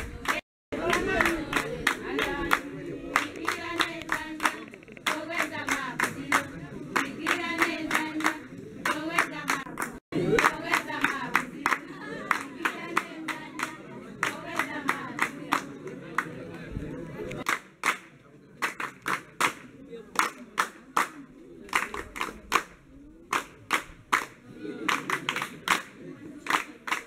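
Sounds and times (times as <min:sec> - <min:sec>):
group singing: 0:00.0 - 0:15.9
rhythmic hand clapping: 0:00.0 - 0:16.4, 0:17.3 - 0:27.0.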